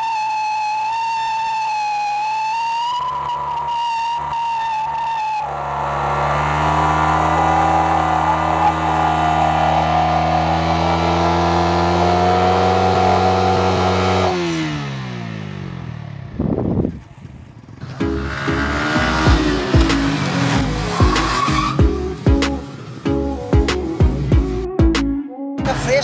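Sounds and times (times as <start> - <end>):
high whistling tone: 0.0 - 5.7
tyre spinning on asphalt: 0.0 - 14.9, 16.3 - 21.9
motorcycle engine at high revs: 0.0 - 24.5.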